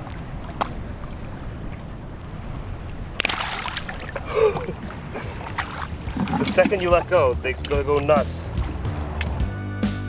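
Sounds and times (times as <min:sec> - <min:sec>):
wind on microphone: 0:00.0 - 0:09.4
water lapping: 0:00.0 - 0:09.5
fish splashing: 0:03.1 - 0:07.8.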